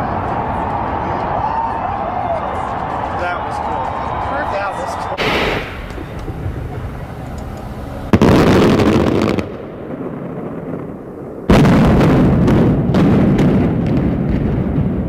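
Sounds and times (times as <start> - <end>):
explosion blasts with rumble: 5.2 - 7.4, 8.1 - 15.0.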